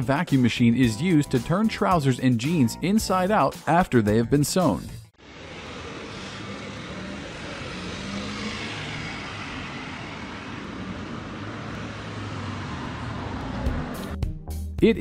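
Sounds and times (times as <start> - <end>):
street traffic rushing: 5.2 - 14.2.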